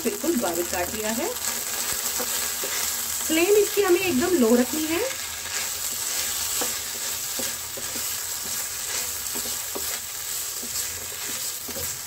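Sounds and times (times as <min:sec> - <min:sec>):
food sizzling in a pan: 0:00.0 - 0:12.0
spatula scraping a pan: 0:01.4 - 0:03.3, 0:04.4 - 0:12.0.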